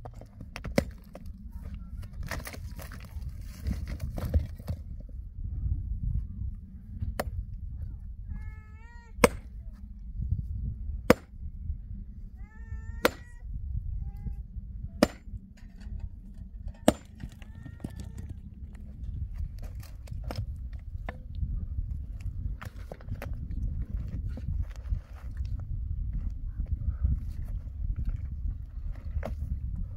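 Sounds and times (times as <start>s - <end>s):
pick striking rock: 0.0s - 1.3s, 9.2s - 9.6s, 11.1s - 11.3s, 13.0s - 13.3s, 15.0s - 18.5s.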